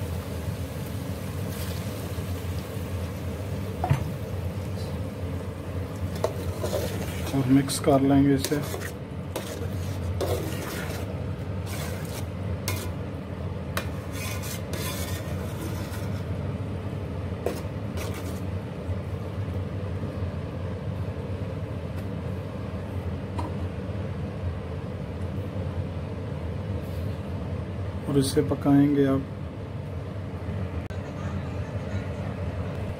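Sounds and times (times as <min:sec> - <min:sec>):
steady low hum: 0:00.0 - 0:32.9
metal spoon scraping pot: 0:06.1 - 0:07.8, 0:08.4 - 0:13.0, 0:13.8 - 0:16.4, 0:17.4 - 0:18.5.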